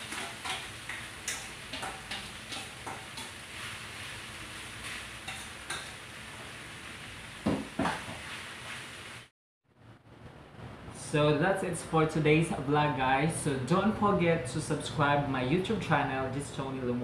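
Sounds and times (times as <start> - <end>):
metal utensil scraping a pan: 0.0 - 3.7, 4.8 - 5.9
food sizzling: 0.0 - 9.3.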